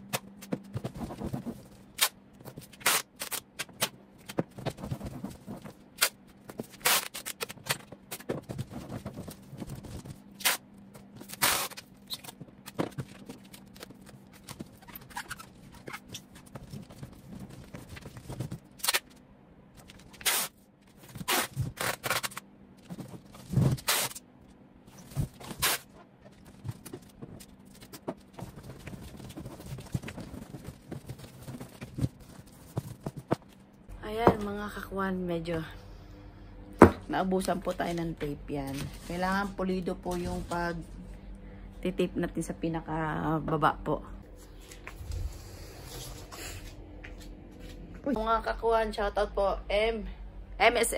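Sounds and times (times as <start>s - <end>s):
items packed into cardboard box: 24.9s - 33.5s.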